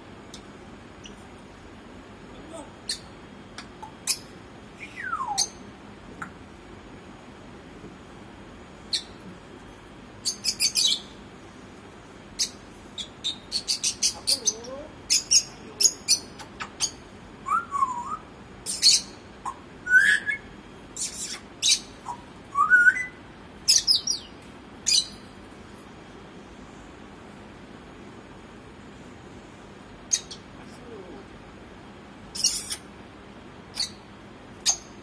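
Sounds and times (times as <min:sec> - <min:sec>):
parrot rising whistles: 0:04.8 - 0:05.5, 0:17.4 - 0:18.2, 0:22.5 - 0:23.2.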